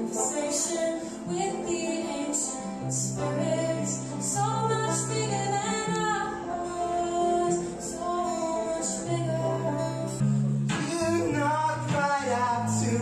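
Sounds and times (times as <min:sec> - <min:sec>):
woman singing: 0:00.0 - 0:10.2
acoustic guitar: 0:00.0 - 0:13.0
banjo: 0:00.0 - 0:13.0.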